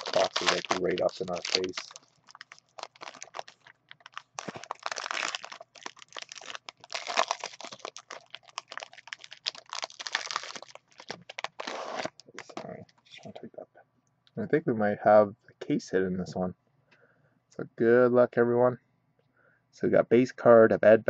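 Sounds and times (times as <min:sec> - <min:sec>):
foil wrapper crinkling: 0:00.0 - 0:12.7.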